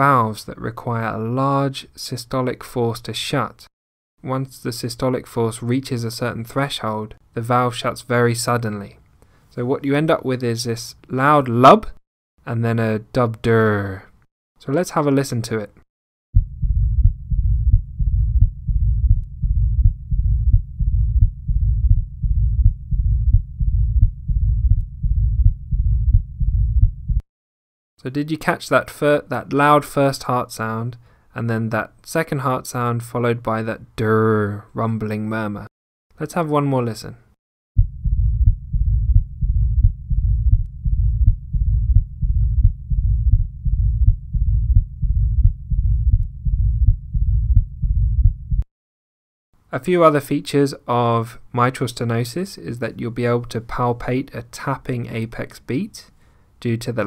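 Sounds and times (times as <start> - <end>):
heartbeat through stethoscope: 16.4 - 27.2, 37.8 - 48.7
low rumbling heart murmur: 16.4 - 27.2, 37.8 - 48.6.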